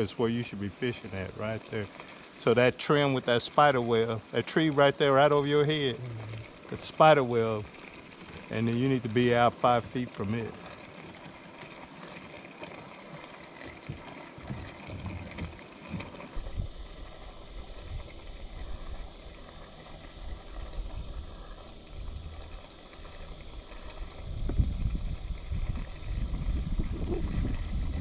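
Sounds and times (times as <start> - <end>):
wind rumbling on microphone: 14.4 - 28.0.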